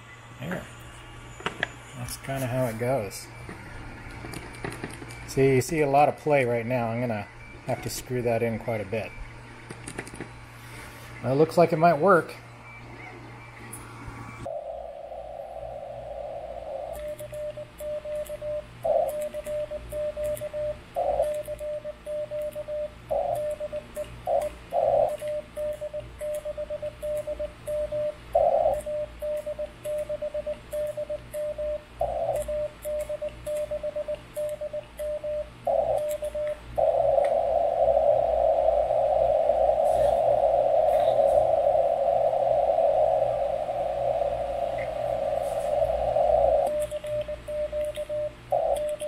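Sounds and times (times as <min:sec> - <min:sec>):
morse code beeps: 0:16.6 - 0:49.0.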